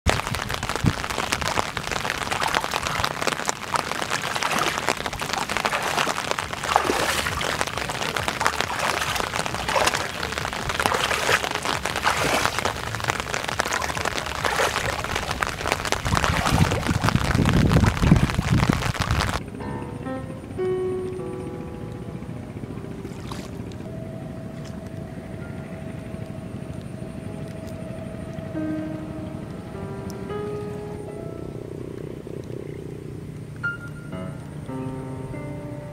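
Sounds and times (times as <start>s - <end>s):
heavy rain falling on water: 0.0s - 19.4s, 23.0s - 23.9s, 24.5s - 31.2s
low rumble: 0.1s - 34.7s.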